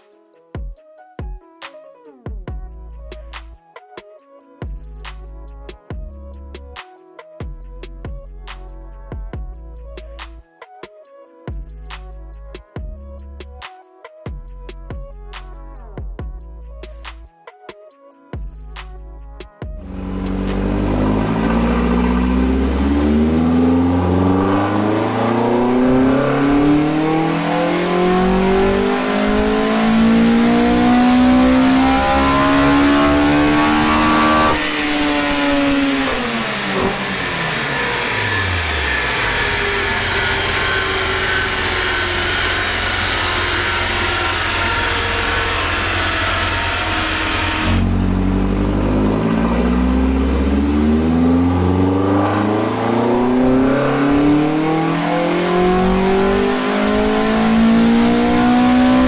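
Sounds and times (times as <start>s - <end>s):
engine revving at full throttle: 19.8s - 59.0s.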